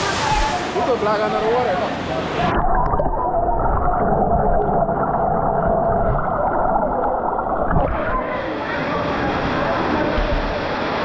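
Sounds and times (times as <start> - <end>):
river water flowing: 0.0 - 11.0
muffled underwater river rumble: 2.4 - 11.0.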